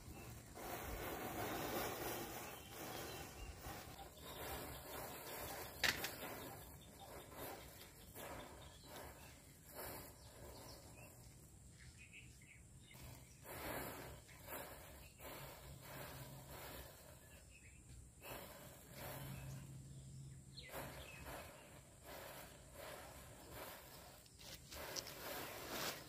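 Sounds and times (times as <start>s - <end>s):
matches fizzing and flaring: 0.0s - 11.6s, 20.7s - 26.0s.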